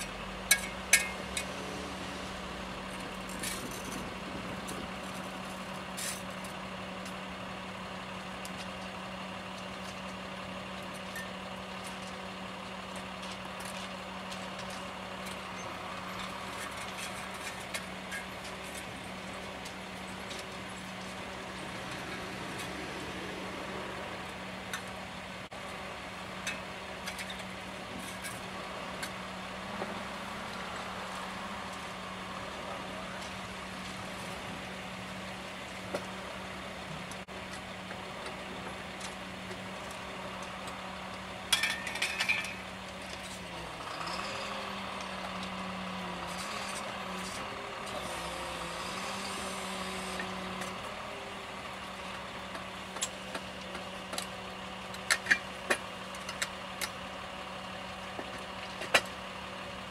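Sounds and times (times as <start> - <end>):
small engine running: 41.6 - 55.4.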